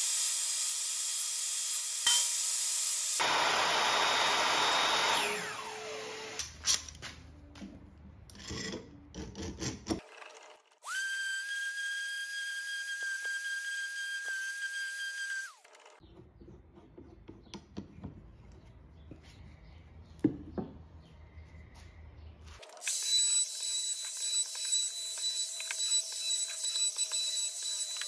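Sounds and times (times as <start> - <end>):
router whining on wood: 0.0 - 6.4, 22.8 - 28.0
orbital sander running: 3.2 - 6.4.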